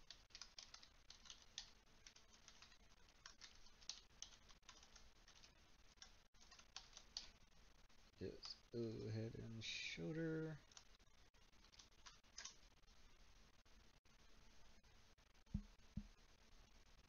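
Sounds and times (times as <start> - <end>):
faint keyboard typing: 0.0 - 7.4, 8.2 - 8.7, 10.6 - 12.9.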